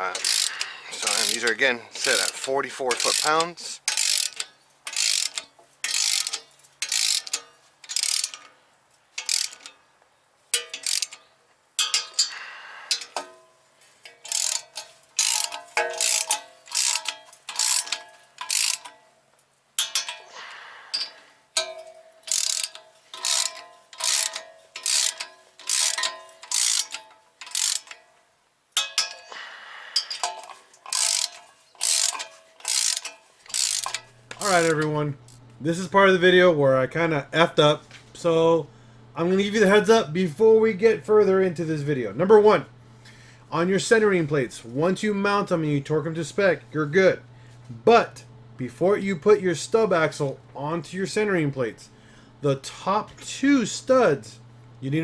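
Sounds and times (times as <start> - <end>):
hand ratchet clicking: 0.0 - 8.6, 9.2 - 9.8, 10.5 - 13.4, 14.0 - 19.0, 19.8 - 28.0, 28.8 - 35.5.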